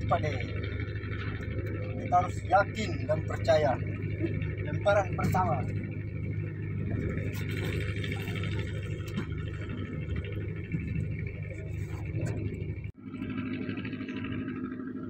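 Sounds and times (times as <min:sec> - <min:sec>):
ship machinery humming: 0:00.0 - 0:15.0.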